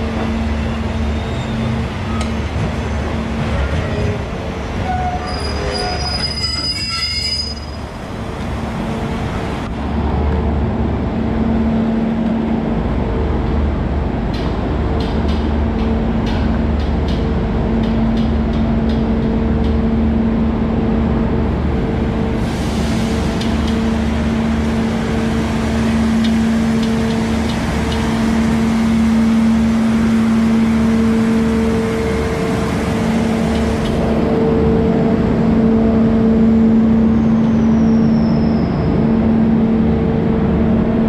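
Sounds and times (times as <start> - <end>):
train engines humming: 0.0 - 41.0
high squeal: 4.9 - 7.9, 37.0 - 39.0.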